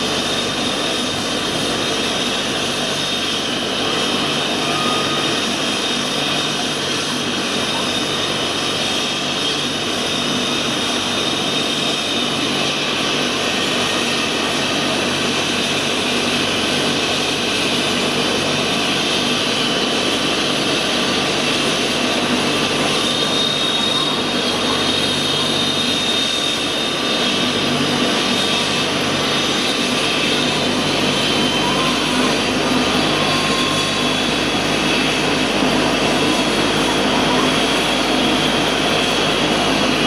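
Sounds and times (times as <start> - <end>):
helicopter rotor noise: 0.0 - 40.0
helicopter turbine whine: 0.0 - 40.0.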